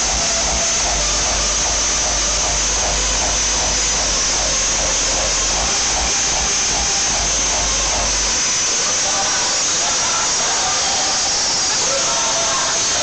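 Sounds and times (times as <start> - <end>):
faint repeating pulse: 0.0 - 8.6
steady low rumble: 0.0 - 8.7
loud distorted hiss: 0.0 - 13.0.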